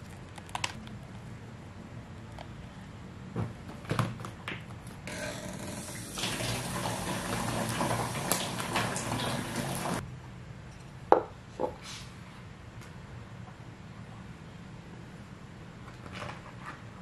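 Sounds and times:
tap water splashing: 0:05.9 - 0:10.0.

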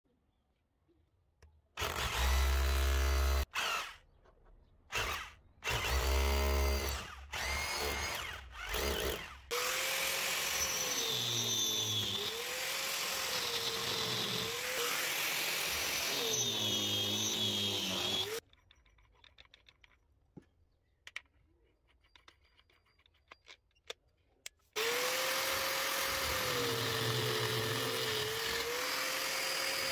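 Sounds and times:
power drill bursts: 0:01.8 - 0:03.9, 0:04.9 - 0:18.4, 0:24.8 - 0:29.9
angle grinder grinding tile: 0:08.8 - 0:18.4, 0:24.8 - 0:29.9.

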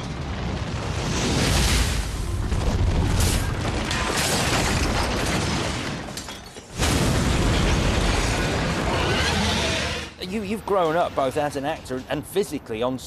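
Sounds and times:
roaring flames: 0:00.0 - 0:06.1, 0:06.7 - 0:11.9
explosive burst: 0:06.8 - 0:10.1.

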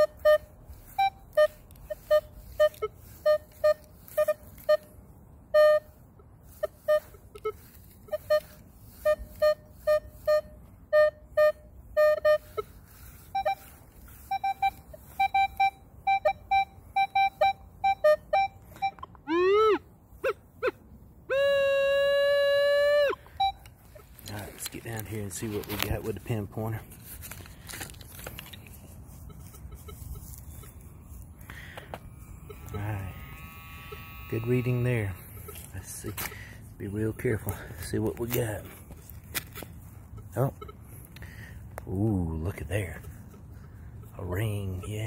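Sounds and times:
rising detector tone: 0:00.0 - 0:04.8, 0:06.8 - 0:20.4, 0:31.8 - 0:35.7
metal detector beeps: 0:00.0 - 0:20.4, 0:21.3 - 0:26.5, 0:29.1 - 0:36.3, 0:39.4 - 0:45.0.

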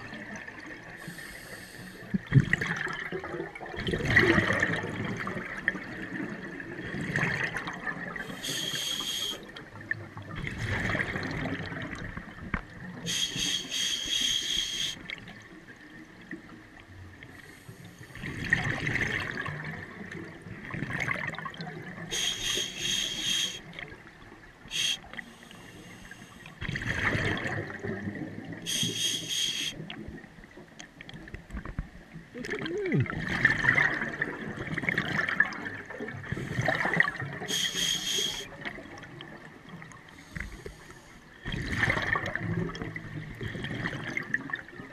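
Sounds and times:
bubbling exhaust underwater: 0:00.0 - 0:15.2, 0:17.3 - 0:24.0, 0:24.7 - 0:30.3, 0:32.3 - 0:44.9
diver regulator hissing inhalation: 0:01.0 - 0:02.1, 0:08.2 - 0:09.4, 0:13.1 - 0:15.0, 0:22.1 - 0:23.6, 0:24.7 - 0:26.5, 0:28.7 - 0:29.8, 0:37.5 - 0:38.5.

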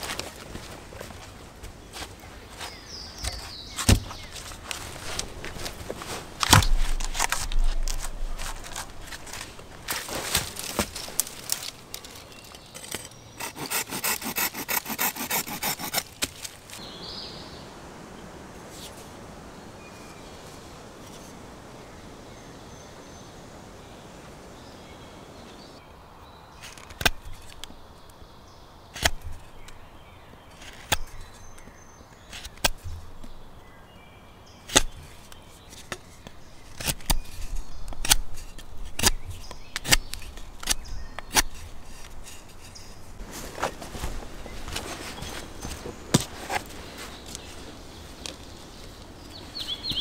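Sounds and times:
knife carving wooden stick: 0:12.7 - 0:16.6.

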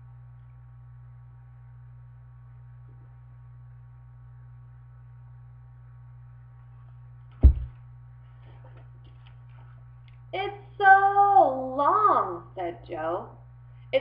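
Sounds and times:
low electrical hum: 0:00.0 - 0:14.0
book thumping against recorder: 0:07.4 - 0:07.8.

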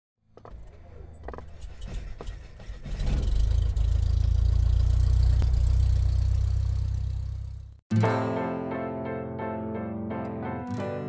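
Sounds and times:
aircraft engine starting: 0:00.8 - 0:07.5.

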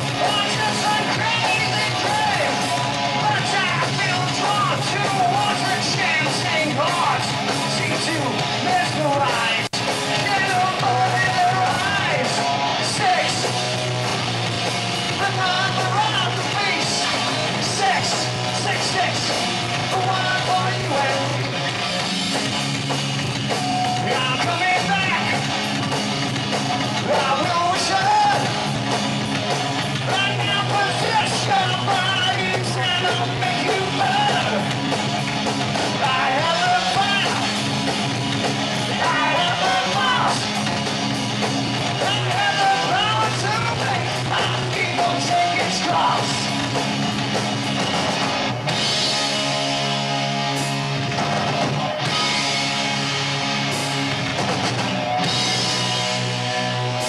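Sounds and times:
person shouting and singing: 0:00.0 - 0:13.5, 0:15.1 - 0:21.5, 0:23.5 - 0:25.6, 0:27.0 - 0:28.7, 0:30.0 - 0:34.7, 0:35.9 - 0:37.6, 0:38.8 - 0:40.6, 0:41.9 - 0:46.6
distorted electric guitar: 0:00.0 - 0:57.0
drum kit: 0:00.0 - 0:57.0.

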